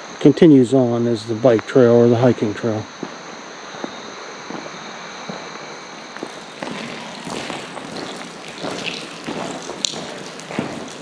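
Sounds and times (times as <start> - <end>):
faint insects buzzing: 0.0 - 11.0
footsteps crunching on a trail: 3.0 - 11.0.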